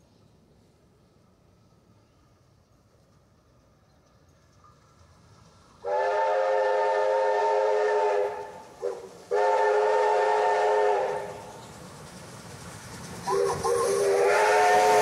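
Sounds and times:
steam locomotive whistle: 5.8s - 11.5s, 13.3s - 15.0s.

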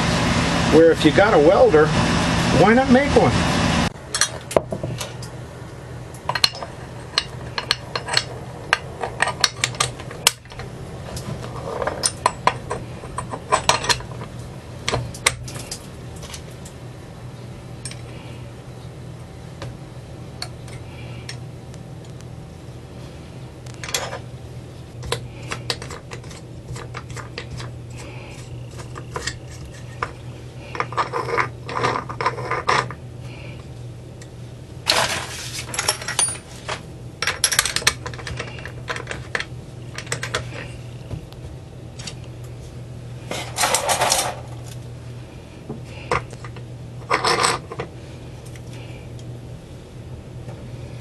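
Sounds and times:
steady low hum: 0.0s - 51.0s
metal parts clicking and clinking: 4.1s - 5.3s, 6.2s - 16.8s, 23.7s - 24.2s, 34.9s - 40.7s, 43.3s - 44.8s, 46.1s - 48.8s
metal clattering and scraping: 34.9s - 39.4s, 43.2s - 44.8s.

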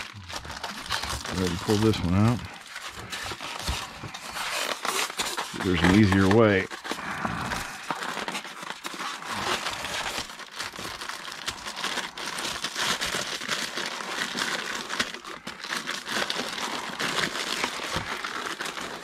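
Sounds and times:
plastic wrap crinkling: 0.0s - 19.0s.

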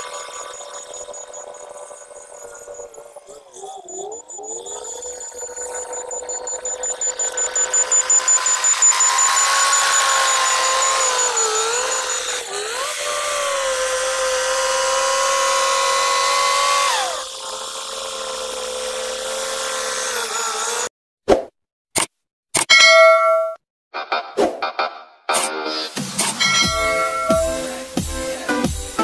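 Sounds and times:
bulldozer working under load: 4.1s - 16.8s.

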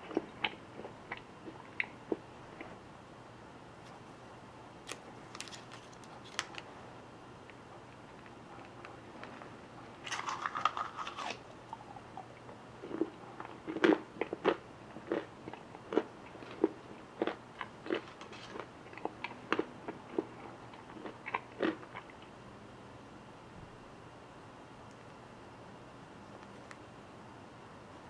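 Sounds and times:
chewing crunches: 10.0s - 22.3s.

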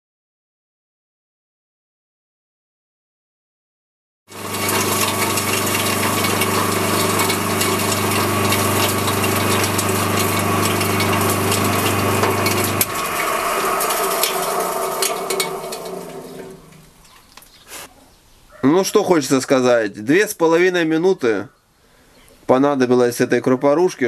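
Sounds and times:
grain grinding rattle: 4.3s - 17.1s
motor hum: 4.3s - 17.1s.

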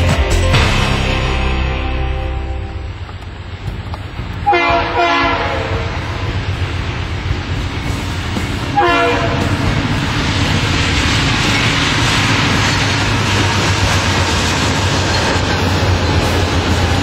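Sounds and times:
train rumbling: 0.0s - 17.0s
locomotive air horn blasts: 4.4s - 6.2s, 8.8s - 9.5s.

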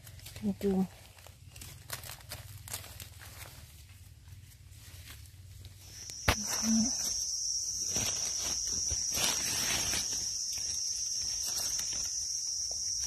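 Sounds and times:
rustling in leaf litter: 0.0s - 13.0s
high-pitched insect drone: 5.8s - 13.0s.

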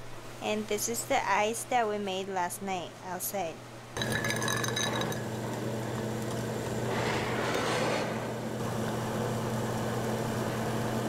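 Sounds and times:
low machine hum: 2.8s - 11.0s
rustling scrape: 6.9s - 8.5s.

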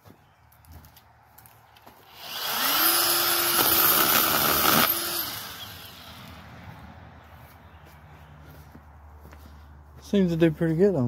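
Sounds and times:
pruning chainsaw cutting branch: 2.0s - 6.4s.

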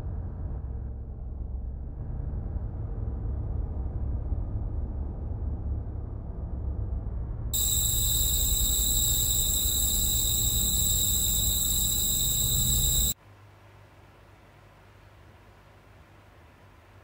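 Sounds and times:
shrill high-pitched whine: 7.6s - 13.2s.

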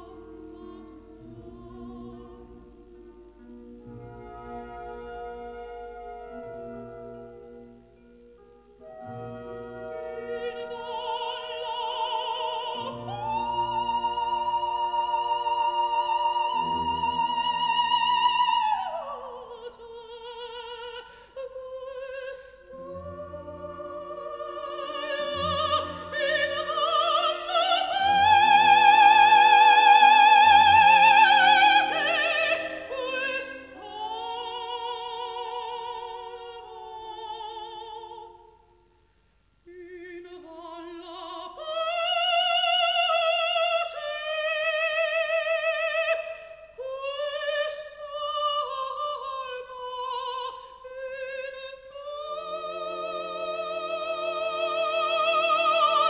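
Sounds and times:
operatic high voice singing: 0.0s - 3.0s, 10.0s - 38.5s, 39.7s - 56.0s
orchestral accompaniment: 0.0s - 17.9s.

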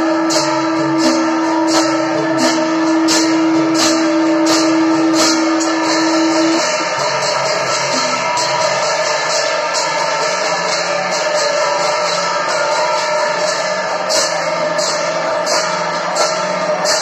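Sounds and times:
drum beat: 0.0s - 17.0s
hand cymbals clashing: 0.0s - 17.0s
horn-like note held: 0.1s - 9.8s.

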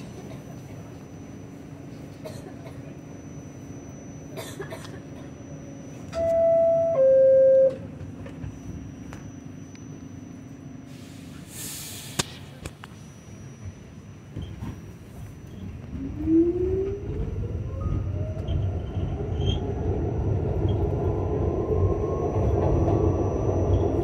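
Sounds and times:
subway car hum: 0.0s - 24.0s
two-tone door chime: 5.4s - 10.5s
short hiss: 10.9s - 12.3s.

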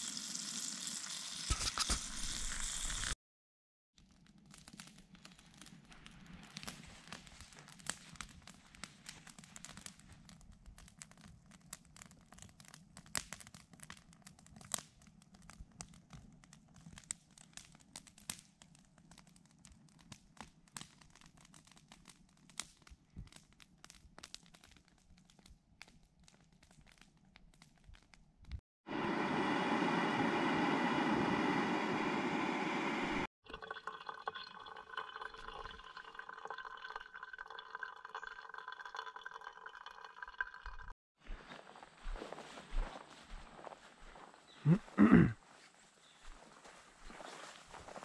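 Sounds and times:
campfire crackling pops: 4.3s - 28.6s.

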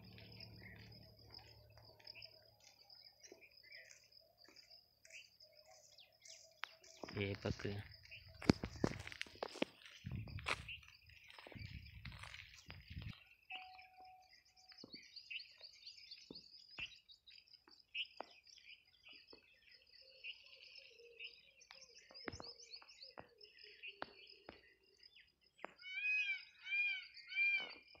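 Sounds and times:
small birds chirping: 0.0s - 28.0s
rising and falling bird calls: 25.6s - 28.0s.

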